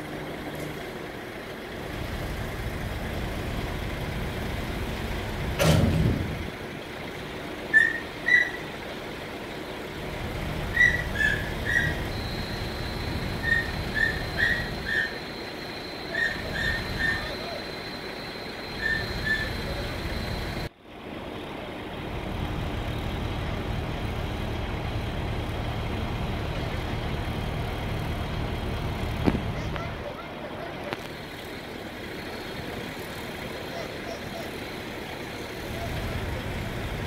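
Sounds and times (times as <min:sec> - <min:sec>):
heavy vehicle engines running: 0:00.0 - 0:37.0
thin high tone: 0:10.8 - 0:20.7.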